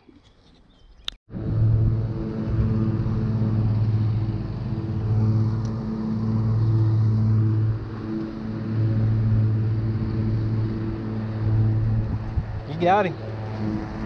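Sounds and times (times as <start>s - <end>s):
motor humming: 1.3s - 14.0s.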